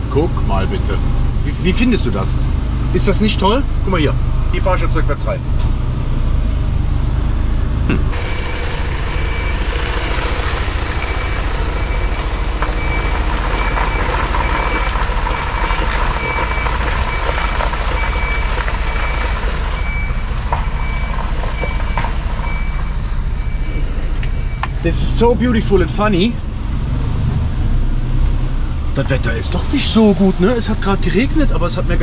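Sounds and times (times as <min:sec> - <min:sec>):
diesel engine rumble: 0:00.0 - 0:32.0
back-up alarm beeping: 0:08.1 - 0:24.8.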